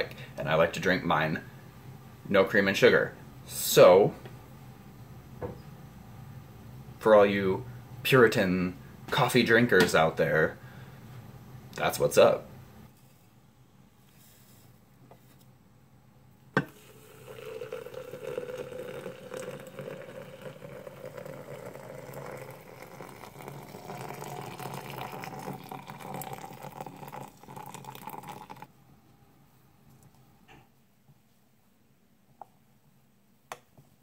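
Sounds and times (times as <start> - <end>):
water pouring into a glass: 16.6 - 28.7.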